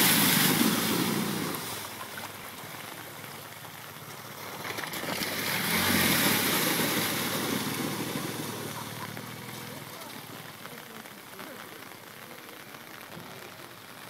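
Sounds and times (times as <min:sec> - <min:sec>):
water spraying: 0:00.0 - 0:11.8.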